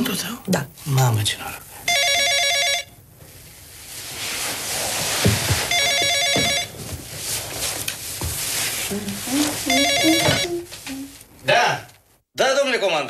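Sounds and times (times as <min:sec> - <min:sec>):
telephone ringing: 0:01.8 - 0:03.0, 0:05.7 - 0:06.8, 0:09.7 - 0:10.7.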